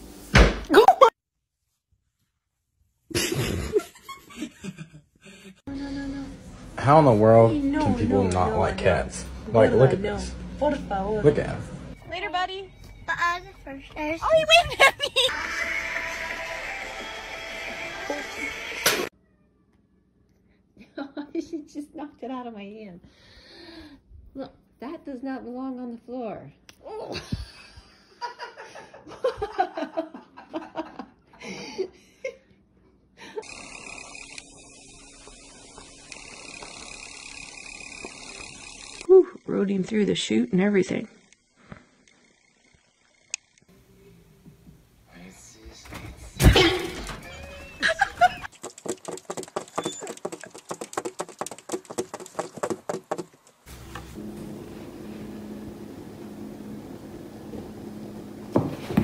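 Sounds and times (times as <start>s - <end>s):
person chuckling: 3.1s - 5.6s, 47.7s - 48.5s.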